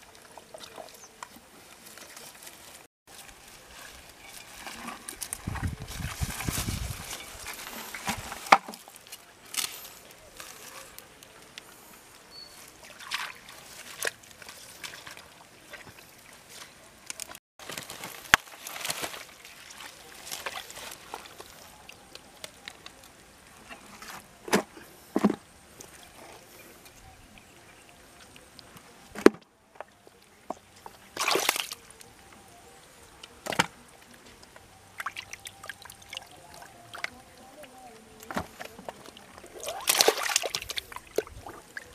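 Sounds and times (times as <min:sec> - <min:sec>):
hands squelching through wet mud: 0:12.6 - 0:22.9, 0:30.6 - 0:32.1, 0:34.4 - 0:41.9
muddy water sloshing: 0:12.6 - 0:41.9.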